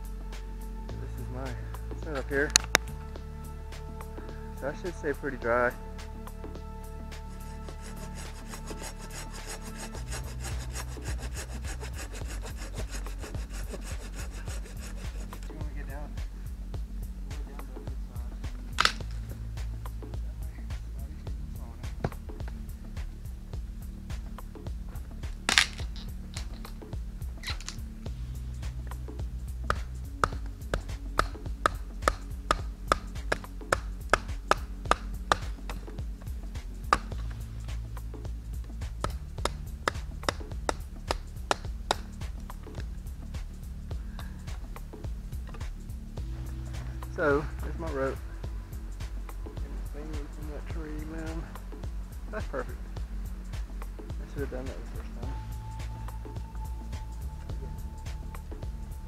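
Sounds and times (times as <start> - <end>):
hand saw cutting branch: 7.2 - 15.5.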